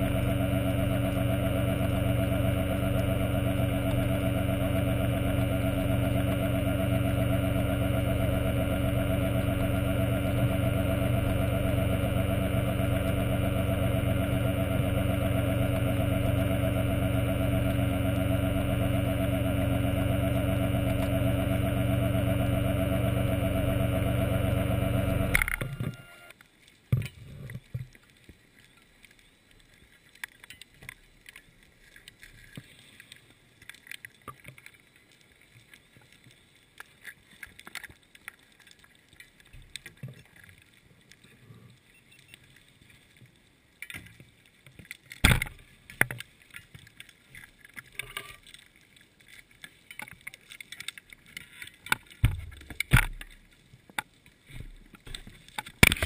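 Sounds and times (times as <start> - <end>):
faint underwater clicks: 25.2 - 56.0.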